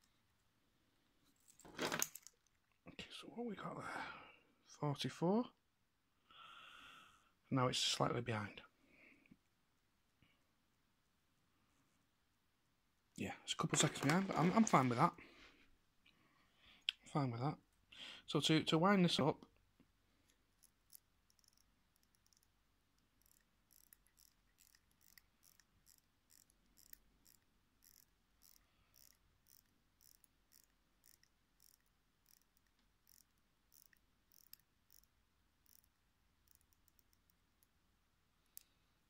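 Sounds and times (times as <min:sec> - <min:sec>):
watch crown ratcheting clicks: 0:20.6 - 0:37.7.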